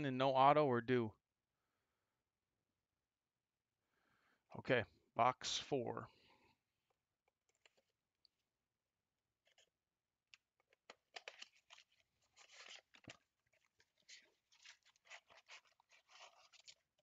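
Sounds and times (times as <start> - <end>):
plastic shrink wrap crinkling: 10.7 - 17.0.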